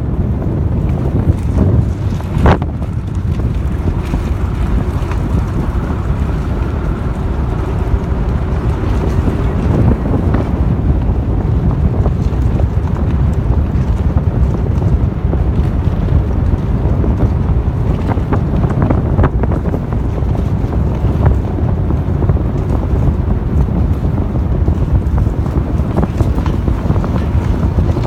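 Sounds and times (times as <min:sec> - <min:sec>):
car engine rumble: 0:00.0 - 0:28.0
wind buffeting microphone: 0:00.0 - 0:28.0.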